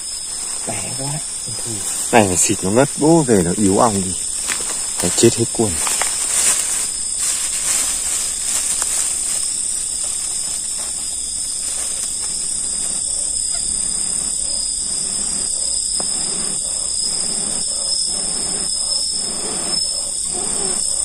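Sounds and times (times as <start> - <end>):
crickets and insects chirping: 0.0 - 21.0
plastic bag rustling: 3.8 - 12.4.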